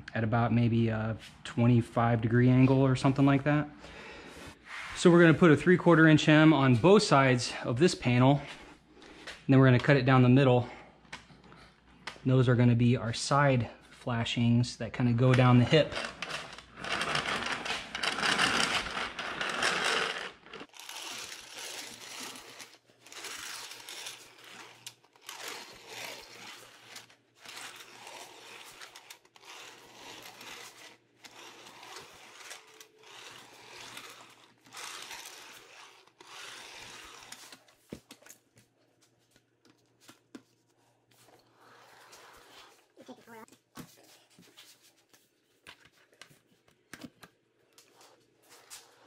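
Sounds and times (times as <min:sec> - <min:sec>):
hemming tool scraping sheet metal: 0:15.5 - 0:37.6.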